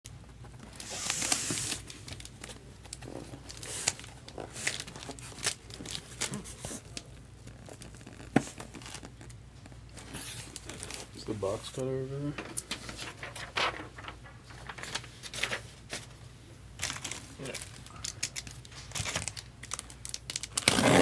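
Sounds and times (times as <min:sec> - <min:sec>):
cardboard tearing: 0:00.7 - 0:02.3, 0:19.0 - 0:21.0.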